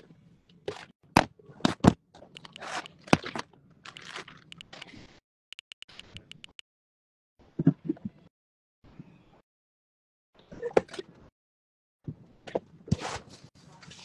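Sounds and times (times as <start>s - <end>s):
touchscreen keyboard clicks: 2.4s - 3.0s, 3.9s - 5.0s, 5.6s - 6.6s.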